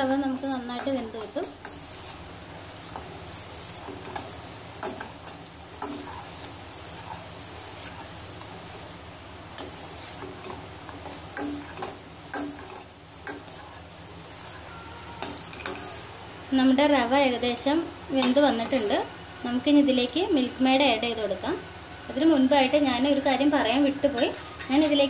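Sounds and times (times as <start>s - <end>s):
spoon scraping metal saucepan: 2.8s - 9.0s, 9.6s - 16.1s.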